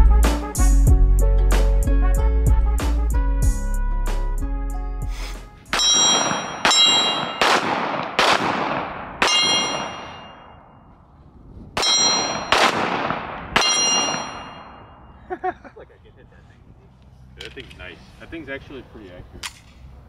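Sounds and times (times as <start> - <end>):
high metallic ring: 5.7 - 7.4, 9.2 - 10.9, 11.8 - 12.5, 13.6 - 15.2
pistol shots: 5.7 - 10.4, 11.8 - 14.7.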